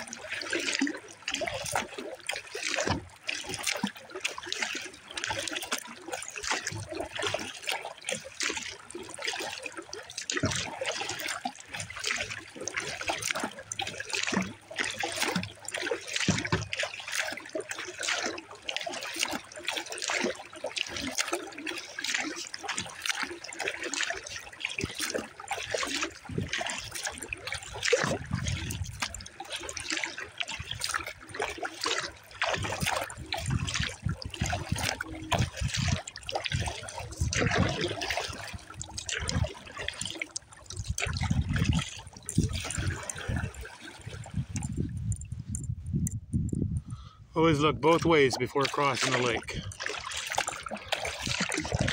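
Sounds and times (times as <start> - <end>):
water slapping against hull: 0.0 - 51.9
water splashing and trickling: 0.0 - 51.9
low rumbles: 44.3 - 48.6.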